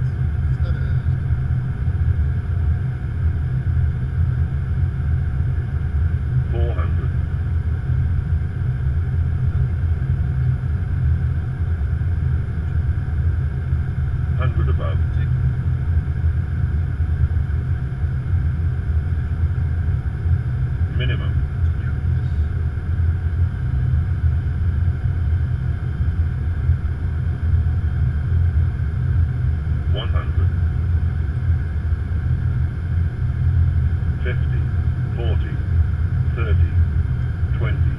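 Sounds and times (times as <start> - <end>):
airflow and engine rumble: 0.0 - 37.9.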